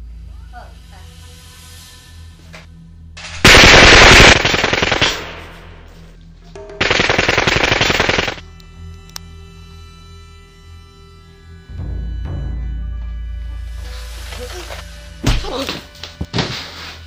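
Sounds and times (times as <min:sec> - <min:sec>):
automatic gunfire bursts: 0:03.4 - 0:05.9, 0:06.8 - 0:08.4.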